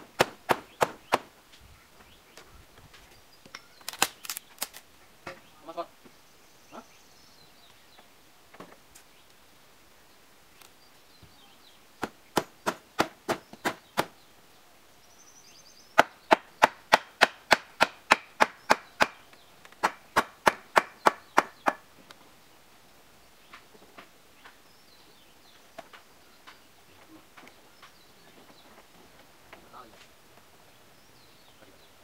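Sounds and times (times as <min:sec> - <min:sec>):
hammer striking wood: 0:12.0 - 0:14.1, 0:16.0 - 0:19.2, 0:19.8 - 0:21.8.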